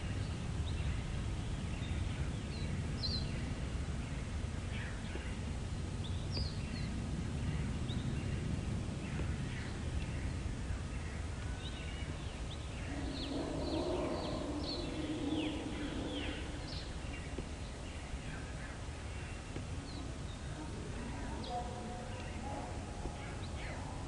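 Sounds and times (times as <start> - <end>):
low outdoor rumble: 0.0 - 24.0
small birds chirping: 0.0 - 24.0
low murmur: 6.9 - 24.0.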